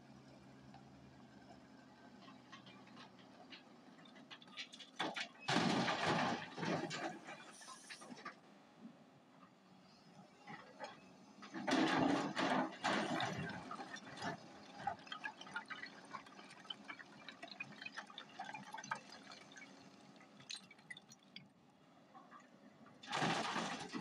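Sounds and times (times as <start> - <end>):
diesel engine hum: 6.2 - 24.0
excavator bucket scraping stone: 11.5 - 14.9.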